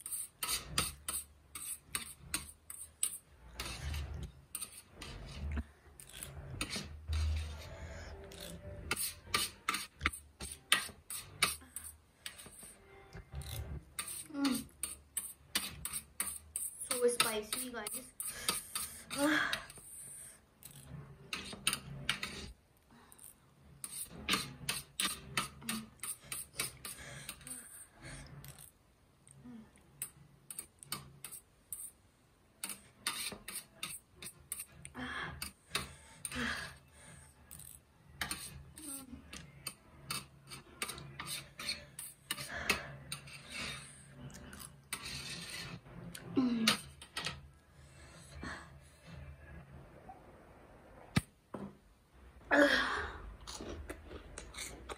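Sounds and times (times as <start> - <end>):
chopsticks scraping steel tray: 0.0 - 12.6, 13.3 - 19.6, 20.6 - 22.6, 23.8 - 27.4, 32.6 - 34.8, 38.2 - 45.8
person chewing: 53.4 - 54.9.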